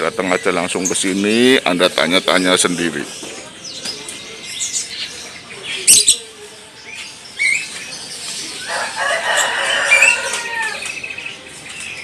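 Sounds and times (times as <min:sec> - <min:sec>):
birds fluttering in cages: 0:00.0 - 0:12.0
small birds chirping: 0:00.0 - 0:12.0.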